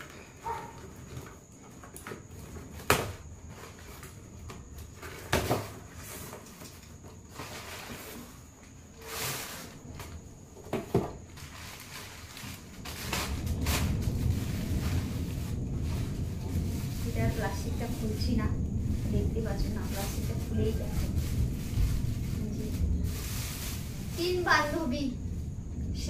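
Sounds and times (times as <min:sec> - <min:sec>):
plastic wrapping crinkling: 0:11.2 - 0:25.2.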